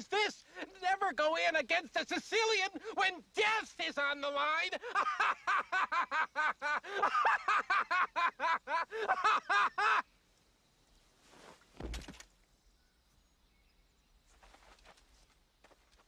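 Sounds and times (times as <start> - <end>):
man cackling laugh: 4.8 - 10.1
dull thud of falling: 11.4 - 12.3.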